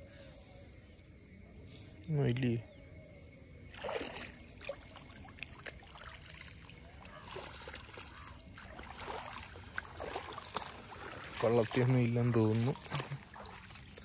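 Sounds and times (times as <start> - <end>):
water dripping and splashing: 3.8 - 14.0.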